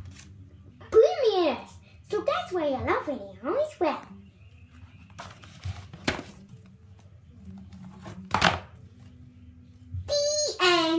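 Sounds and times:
book cover closing thump: 5.2 - 6.4.

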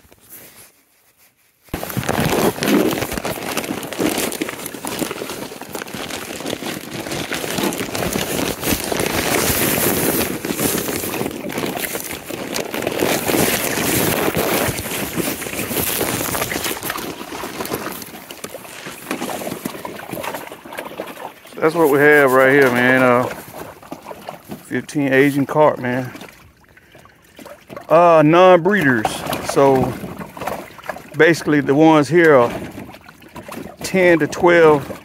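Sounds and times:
microphone rubbing against clothing: 0.0 - 3.2.

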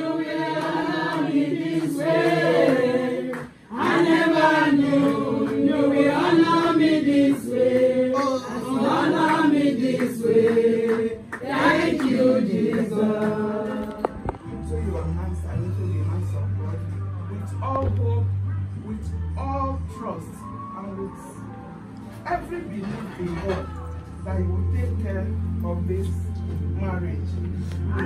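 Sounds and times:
group singing unaccompanied: 0.0 - 14.4.

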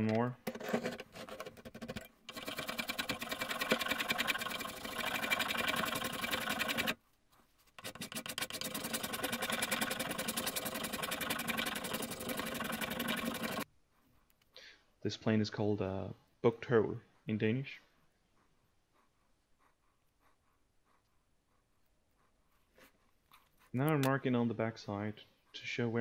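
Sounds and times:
spokeshave shaving wood: 1.1 - 7.0, 7.7 - 13.7.

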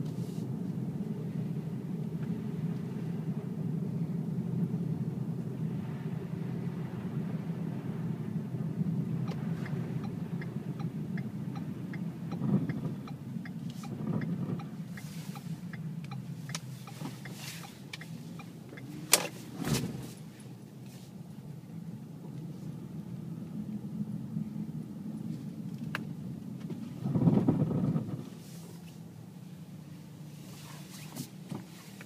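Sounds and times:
car engine hum: 0.0 - 32.0
road noise: 0.0 - 32.0
turn signal ticking: 9.2 - 19.5.

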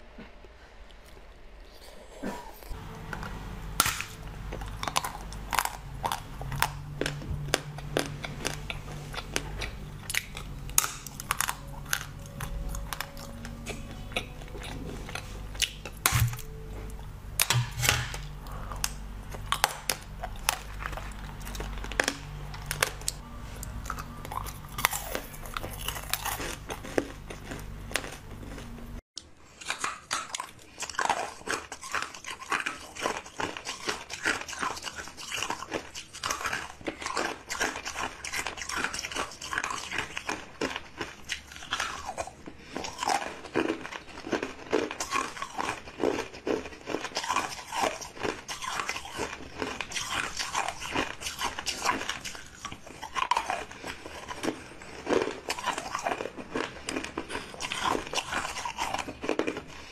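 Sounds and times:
low hum: 2.6 - 29.0
chewing chocolate crunches: 2.7 - 59.9
crunching frozen jelly sticks: 2.7 - 59.9.

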